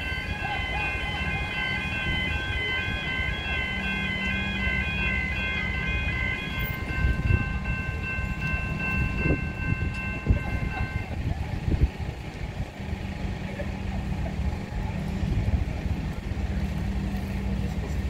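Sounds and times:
level crossing bells ringing: 0.0 - 11.3
electric train rumbling past: 0.0 - 18.0.

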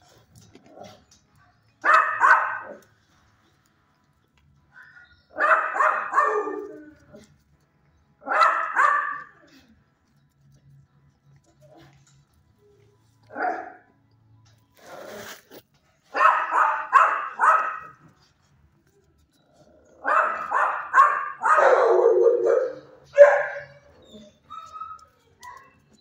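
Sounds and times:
young dog barking: 1.8 - 2.8, 5.4 - 6.7, 8.3 - 9.4, 16.1 - 17.9, 20.0 - 23.9.

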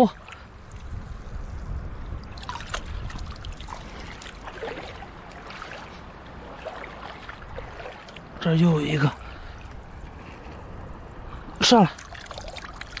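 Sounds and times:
seawater splashing and trickling: 0.0 - 13.0
steady low rumble: 0.2 - 13.0
small sharp splashes: 2.1 - 8.4, 11.8 - 13.0.

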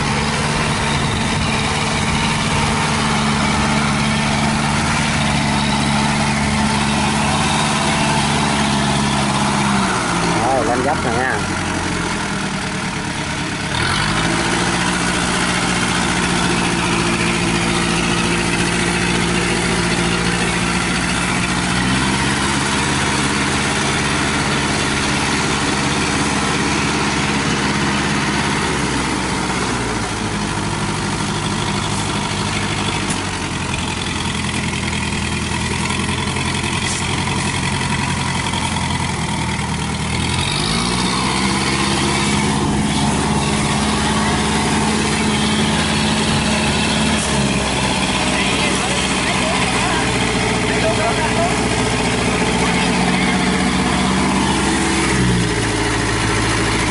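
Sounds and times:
small engine revving: 13.5 - 30.3, 39.9 - 56.9.

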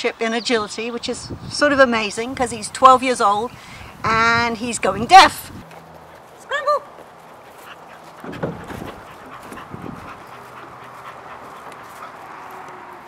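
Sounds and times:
dog panting: 5.7 - 13.0.

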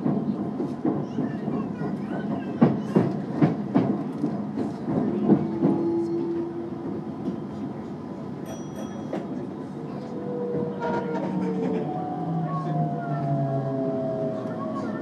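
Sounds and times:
train wheels clacking on rail joints: 0.0 - 6.5
train rumble: 0.0 - 15.0.

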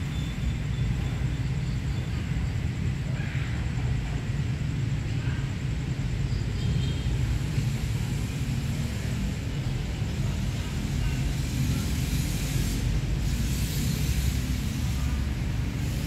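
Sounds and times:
hiss: 6.4 - 16.0.

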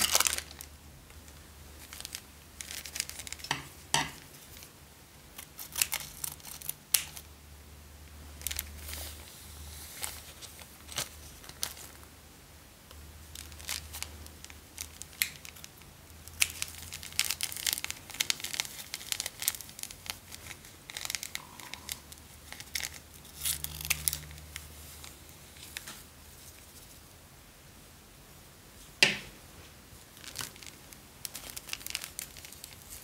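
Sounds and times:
plastic bags crinkling and tearing: 0.0 - 0.7, 1.3 - 4.7, 5.4 - 7.3, 8.4 - 9.2, 9.9 - 12.1, 13.3 - 26.0, 30.1 - 33.0.

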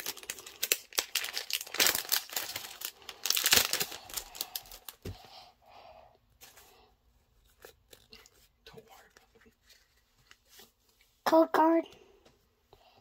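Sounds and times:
foil wrapper crinkling and tearing: 0.0 - 5.1.

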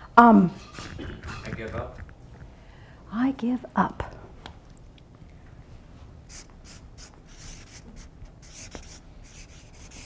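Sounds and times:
marker scratching on paper: 6.3 - 10.0.

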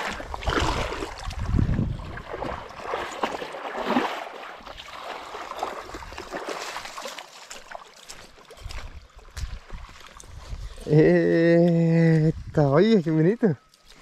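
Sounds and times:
water splashing around boat: 0.0 - 10.8.

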